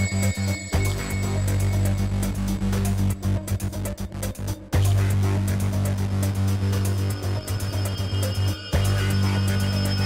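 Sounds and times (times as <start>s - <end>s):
electronic music with deep bass: 0.0s - 10.0s.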